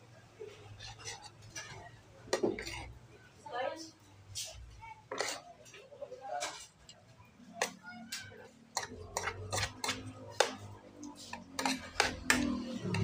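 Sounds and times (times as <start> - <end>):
cutlery clinking on plates: 4.4 - 7.0, 7.6 - 13.0.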